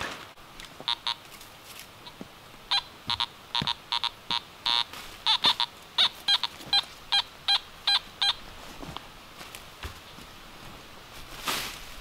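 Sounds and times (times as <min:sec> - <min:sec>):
metal detector beeps: 0:00.8 - 0:01.2, 0:02.7 - 0:08.4.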